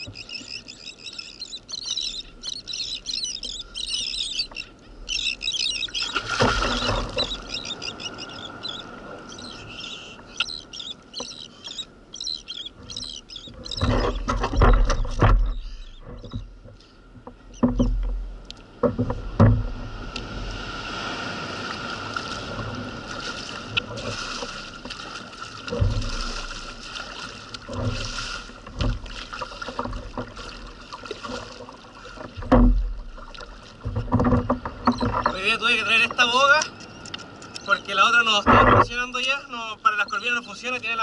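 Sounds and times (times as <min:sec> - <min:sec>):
water splashing: 0:00.0 - 0:16.5, 0:17.6 - 0:41.0
knocks against kayak: 0:18.8 - 0:19.9, 0:32.2 - 0:33.2, 0:33.8 - 0:35.4.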